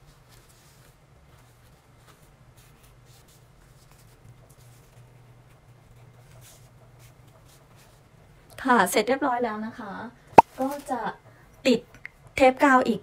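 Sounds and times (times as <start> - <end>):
fabric rustling and rubbing: 0.1 - 5.1.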